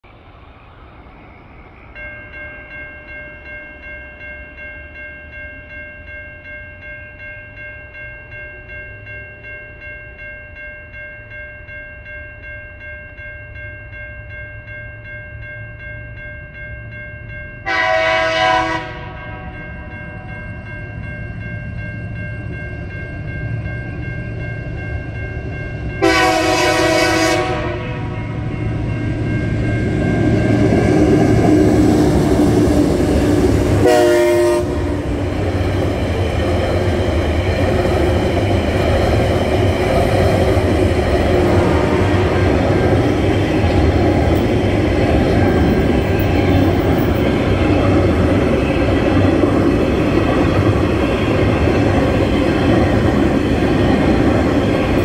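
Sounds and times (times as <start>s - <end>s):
crossing warning bell ringing: 1.9s - 55.0s
locomotive horn blasts: 17.6s - 19.5s, 26.0s - 28.1s, 33.8s - 35.0s, 41.6s - 42.3s.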